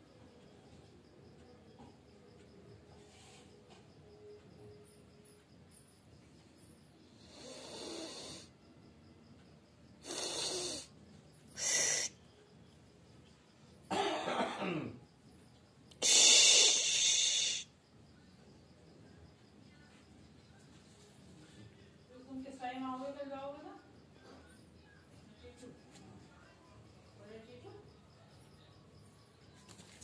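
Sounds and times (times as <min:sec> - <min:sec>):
person coughing: 0:13.9 - 0:15.0.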